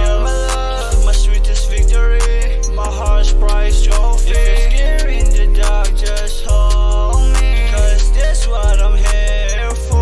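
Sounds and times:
hip-hop beat with deep bass: 0.0s - 10.0s.

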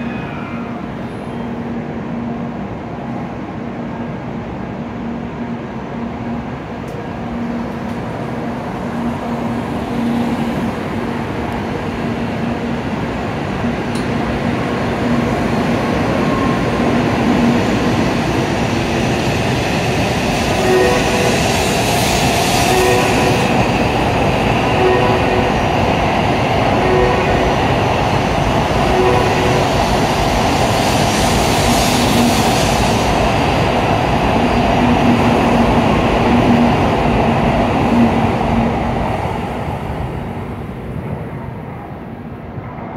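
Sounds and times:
train accelerating past: 4.9s - 42.9s.

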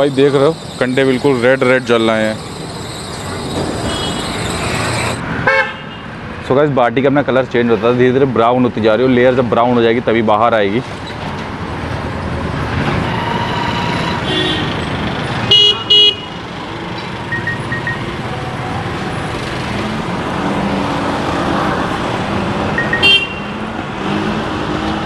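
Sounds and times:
traffic hum: 0.0s - 25.0s
vehicle horns honking: 3.3s - 6.0s, 13.0s - 14.8s, 15.4s - 16.4s, 22.8s - 23.6s.

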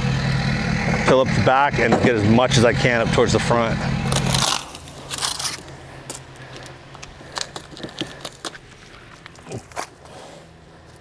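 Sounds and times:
handling crackles and rustling: 4.1s - 11.0s.

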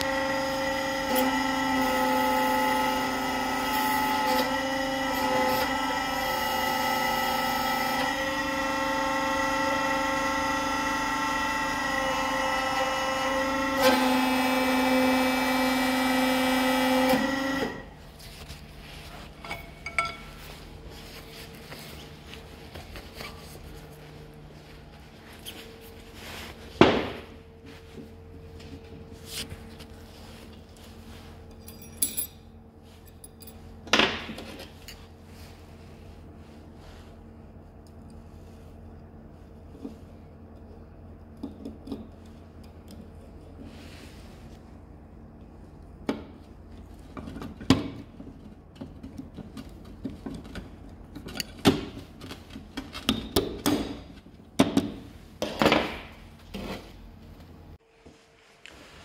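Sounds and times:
steady low hum: 17.8s - 59.0s
steel parts clinking on workbench: 19.4s - 20.4s, 31.5s - 32.5s.

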